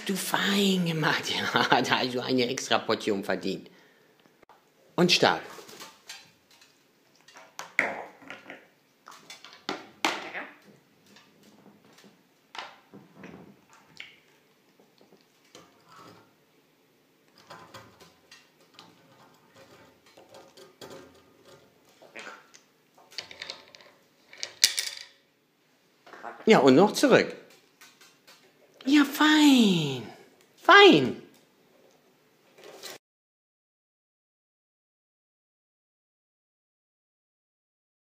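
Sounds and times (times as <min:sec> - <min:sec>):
plastic toys clicking and clattering: 0:17.3 - 0:22.2, 0:23.0 - 0:25.2.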